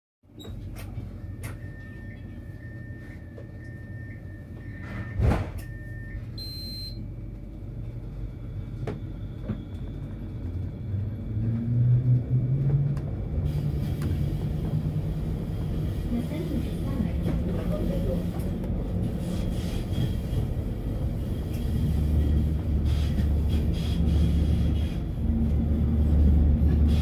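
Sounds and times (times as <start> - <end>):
tram rumbling: 0.5 - 27.0
short high beep: 3.8 - 7.0
thud: 5.2 - 5.6
tram motor rising in pitch: 8.2 - 17.4.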